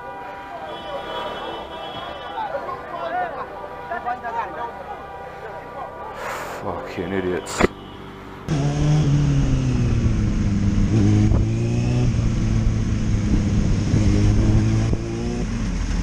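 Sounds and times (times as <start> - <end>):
motorcycle engine running: 8.5 - 16.0.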